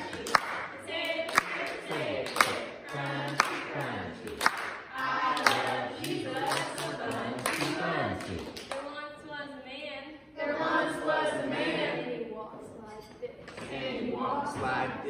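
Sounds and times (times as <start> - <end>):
group singing a worship song: 0.0 - 8.8, 10.4 - 12.6, 13.4 - 15.0
hand claps: 0.0 - 8.8.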